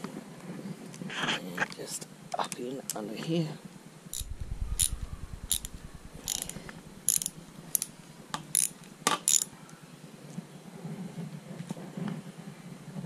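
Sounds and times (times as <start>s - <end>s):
socket ratchet clicking: 4.2s - 9.5s.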